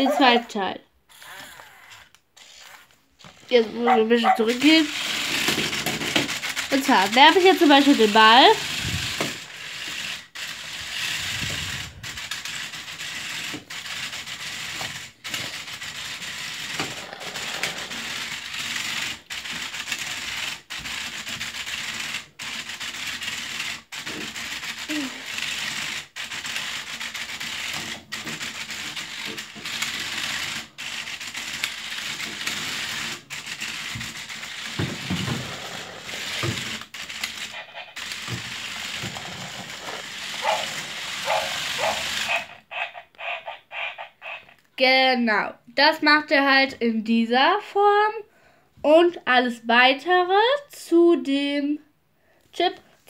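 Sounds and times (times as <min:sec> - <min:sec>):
robot drive motors whirring: 0:33.8 - 0:42.5.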